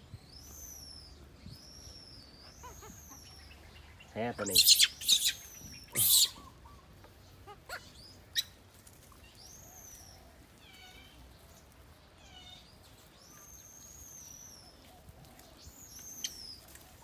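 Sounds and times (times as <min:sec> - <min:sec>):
baby monkey crying: 0:04.5 - 0:06.6, 0:07.4 - 0:08.5.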